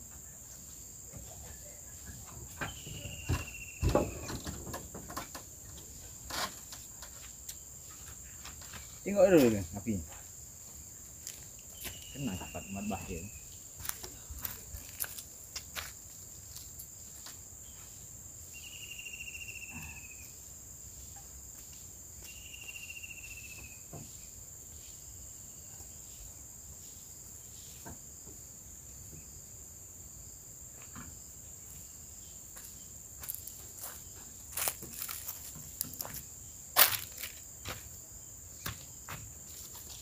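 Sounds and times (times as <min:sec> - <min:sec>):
insects droning: 0:00.0 - 0:40.0
pulsed insect trills: 0:00.0 - 0:40.0.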